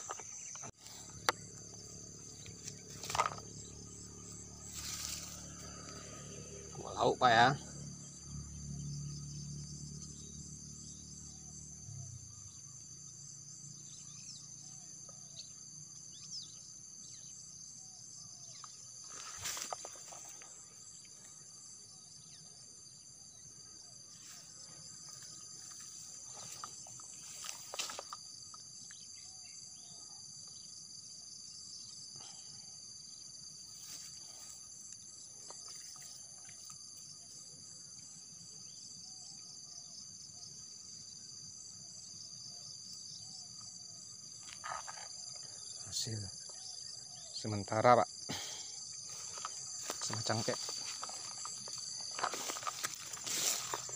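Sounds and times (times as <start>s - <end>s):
insects chirping: 0.0s - 53.9s.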